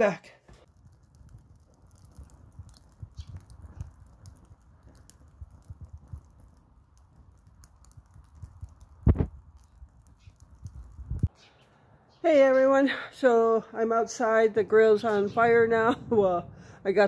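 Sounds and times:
fire crackling and popping: 0.0s - 11.7s, 12.6s - 17.0s
low rumble of flame: 0.5s - 12.1s, 13.6s - 17.0s.

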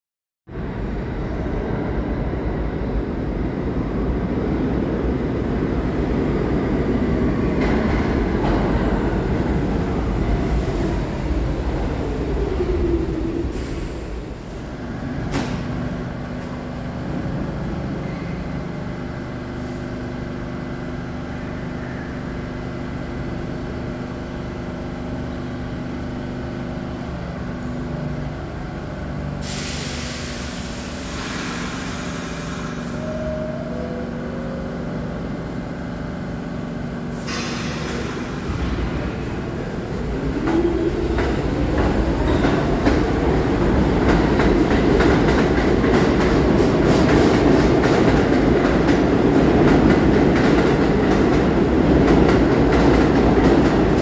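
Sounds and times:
subway train wheels rumbling: 0.5s - 54.0s
standing train humming: 0.6s - 54.0s
air hissing: 29.4s - 33.1s, 37.1s - 40.0s
train brakes whining: 29.4s - 33.8s, 37.2s - 38.6s.

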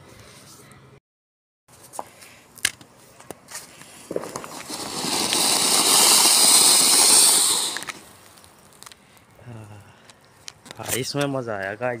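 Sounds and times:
firework sparks hissing: 3.8s - 8.9s.

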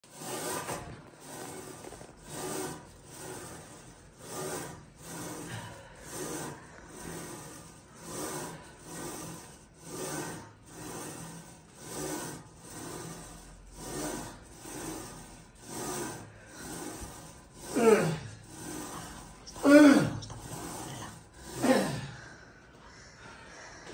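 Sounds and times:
woman breathing heavily: 5.0s - 9.7s, 16.2s - 23.9s.

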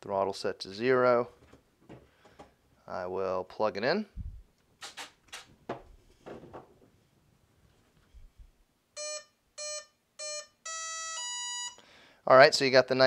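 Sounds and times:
short electronic beeps: 9.0s - 11.8s.

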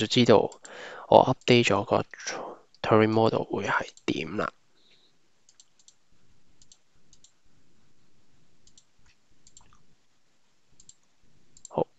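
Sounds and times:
computer mouse clicks: 0.5s - 0.8s, 5.5s - 6.0s, 6.6s - 7.4s, 8.6s - 9.8s, 10.8s - 11.8s.

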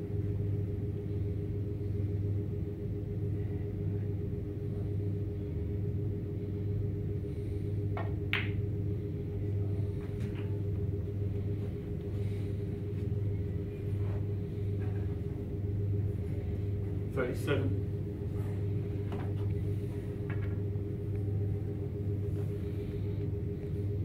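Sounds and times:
steady low hum: 0.0s - 24.0s
cue tip clicking on ball: 8.0s - 8.6s
snooker balls colliding: 8.0s - 8.7s.

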